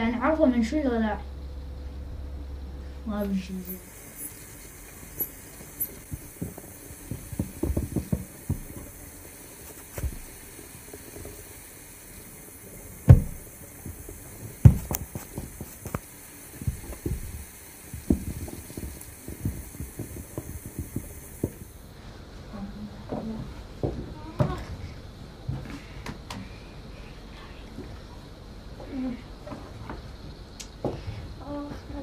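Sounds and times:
loud thumps: 5.7 - 9.2, 9.8 - 10.4, 13.0 - 15.9, 16.6 - 21.8.

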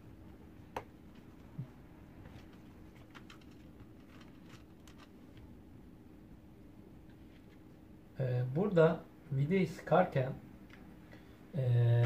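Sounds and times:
plastic parts clicking: 3.0 - 5.4.

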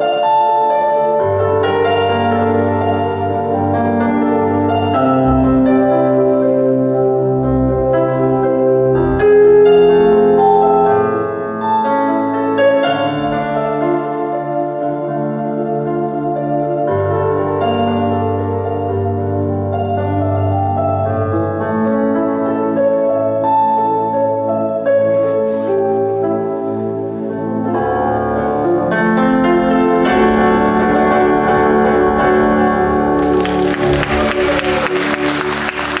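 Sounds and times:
piano chords on keyboard: 0.0 - 36.0
audience applause: 33.2 - 36.0.

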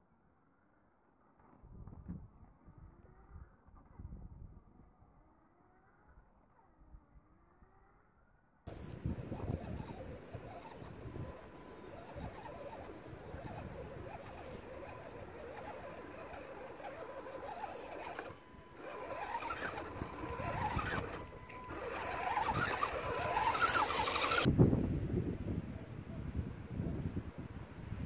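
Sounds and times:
toy car electric motor whining: 8.7 - 24.5.

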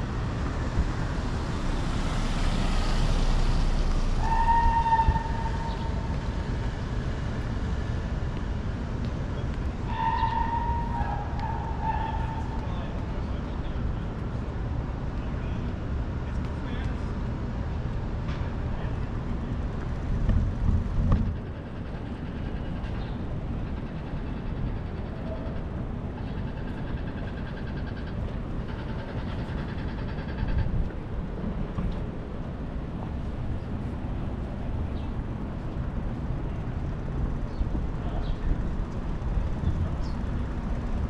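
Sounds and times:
city street traffic: 0.0 - 41.0
wind rumbling on microphone: 19.1 - 41.0.

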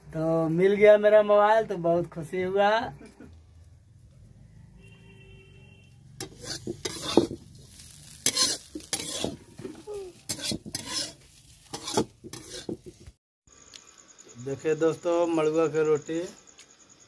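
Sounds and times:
utensil scraping metal pot: 6.2 - 13.1.

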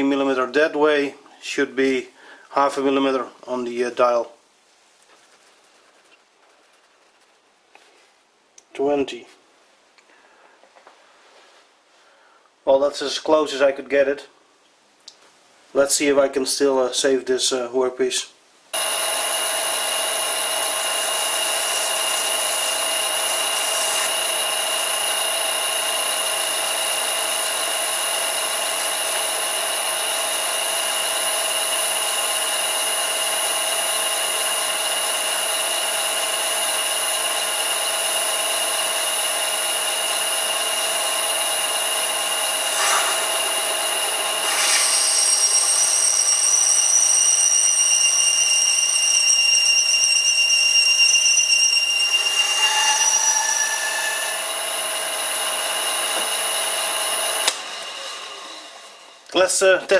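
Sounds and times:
lathe motor whining: 18.8 - 59.3
metal cutting noise: 18.8 - 59.3.

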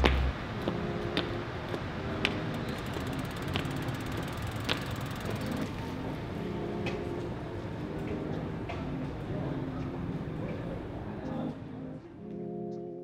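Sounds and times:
street background noise: 0.0 - 13.0
sharp clicks: 2.6 - 5.7.

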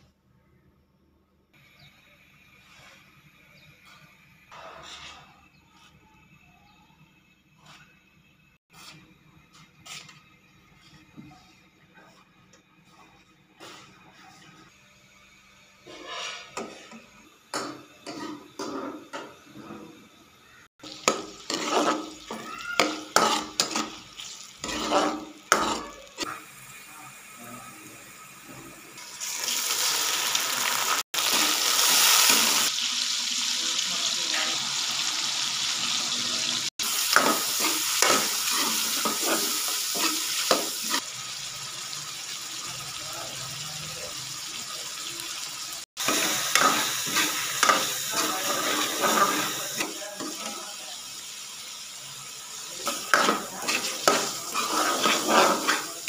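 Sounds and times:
meat sizzling in oil: 20.7 - 56.0
ladle clinking and scraping pot: 20.9 - 26.3, 52.8 - 56.0.

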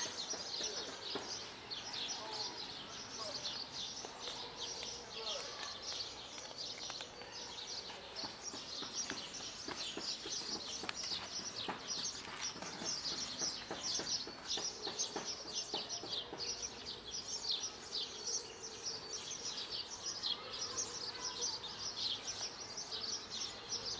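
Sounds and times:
birds chirping: 0.0 - 23.9.

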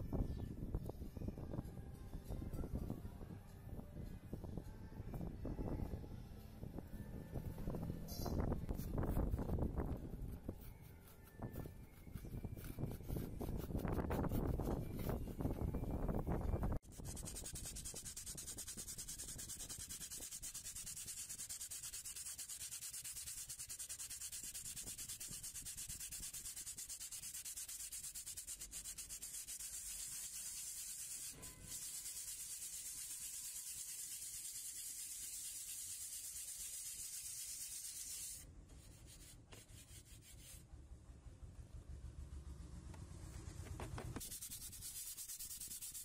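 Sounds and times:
sandpaper rubbing by hand: 8.6 - 15.7, 16.7 - 40.6, 43.4 - 46.0.

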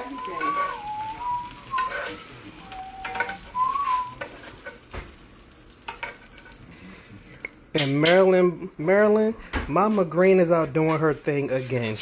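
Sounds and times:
person whistling: 0.0 - 4.2
utensil scraping a frying pan: 0.0 - 5.0, 5.8 - 6.8
oil sizzling: 0.0 - 12.0.

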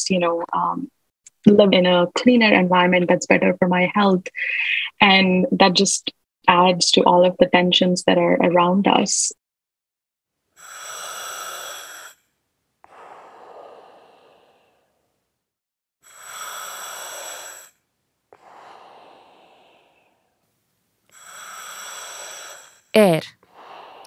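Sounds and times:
slow deep breathing: 10.6 - 15.3, 16.0 - 20.4, 21.1 - 24.0.

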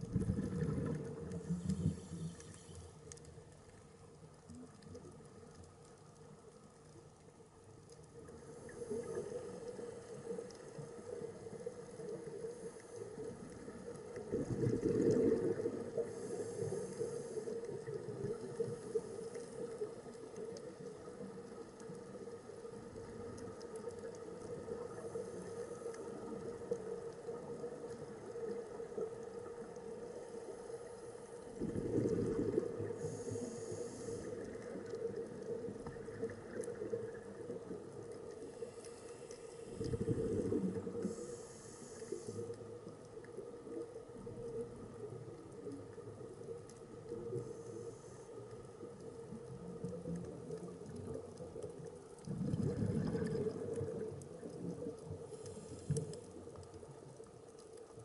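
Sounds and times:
bubbling rushes: 0.0 - 2.0, 14.3 - 16.0, 31.6 - 33.0, 52.2 - 54.7
low underwater hum: 0.0 - 58.0.

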